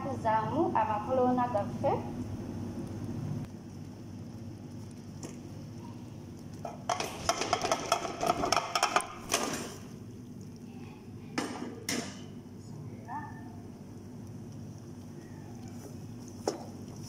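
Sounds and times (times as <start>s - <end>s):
metal utensils clattering on pot: 6.6s - 9.8s.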